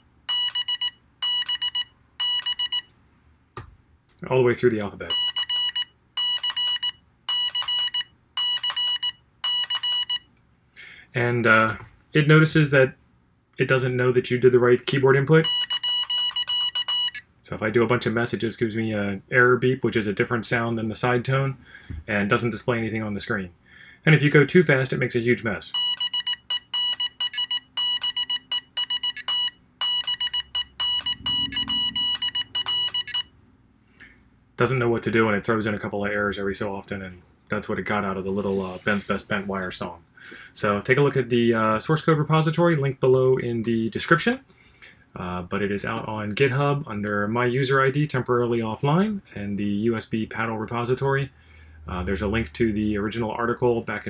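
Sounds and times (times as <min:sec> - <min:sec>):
morse code beeps: 0:00.3 - 0:02.9, 0:05.1 - 0:10.2, 0:15.4 - 0:17.2, 0:25.8 - 0:33.3.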